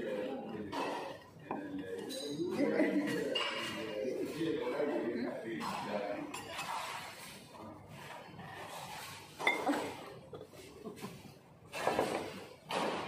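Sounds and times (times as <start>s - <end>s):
tableware clinking: 0.6s - 4.0s, 6.3s - 7.1s, 9.4s - 10.1s.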